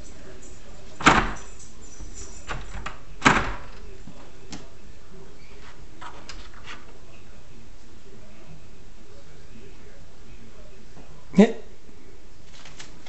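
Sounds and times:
door handle and latch clacking: 1.0 - 1.5
door clicks and knocks: 1.0 - 1.6, 2.4 - 3.9.

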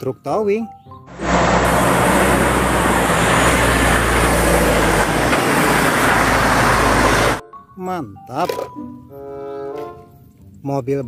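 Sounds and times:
heavy truck engine running: 1.1 - 7.4
tyre and road noise: 1.1 - 7.4.

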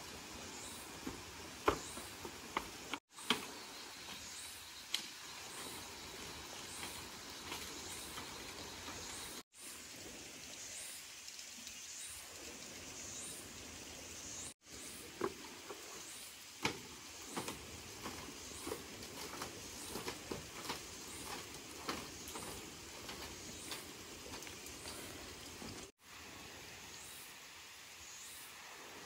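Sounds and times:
wood fire crackling and popping: 16.6 - 25.9.

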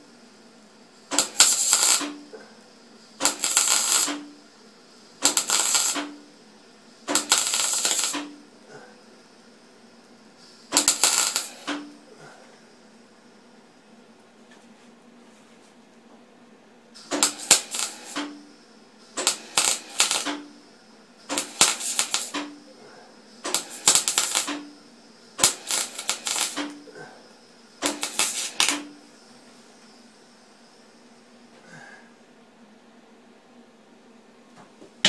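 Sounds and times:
welder low hum: 0.0 - 13.8, 17.0 - 29.4
welding arc crackling: 1.1 - 2.3, 3.2 - 4.4, 5.1 - 6.4, 7.0 - 8.5, 10.6 - 12.1, 17.0 - 18.5, 19.1 - 20.6, 21.3 - 22.6, 23.4 - 26.9, 27.8 - 29.1.

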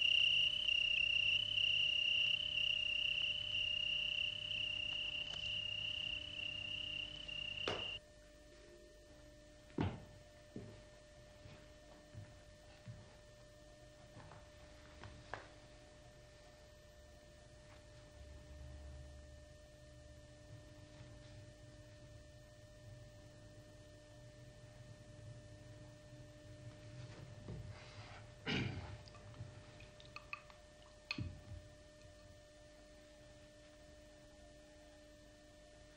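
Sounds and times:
steady high trill: 0.0 - 8.0
faint steady hum: 0.0 - 35.9.

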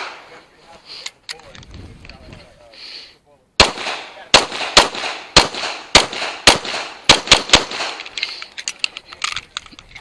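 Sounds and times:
pistol shots: 0.0 - 0.3, 3.6 - 8.1
light clicks and rattles: 8.0 - 10.0.

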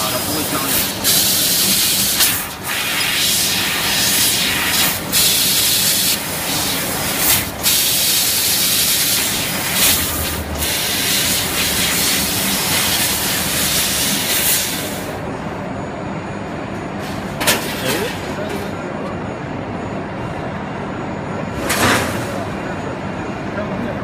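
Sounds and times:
laser cutter gas jet hissing: 0.0 - 15.2.

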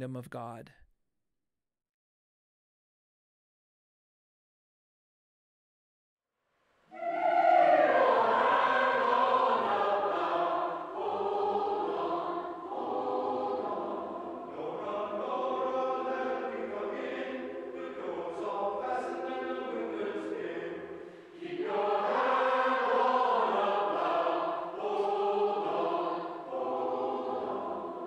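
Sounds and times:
choir singing a spiritual: 6.9 - 28.0.

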